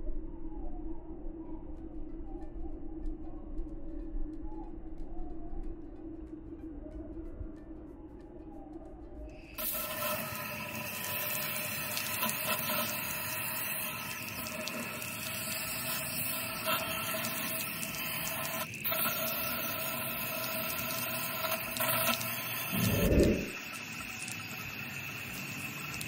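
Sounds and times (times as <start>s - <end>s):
hose nozzle spraying water: 9.6s - 26.0s.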